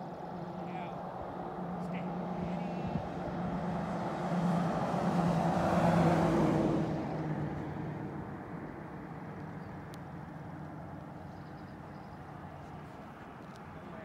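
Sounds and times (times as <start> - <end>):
vehicle driving past: 0.1 - 9.9.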